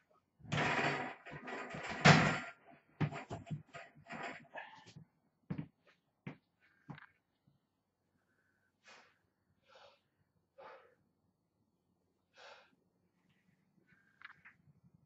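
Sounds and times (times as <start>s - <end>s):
man breathing forcefully: 8.8s - 11.0s.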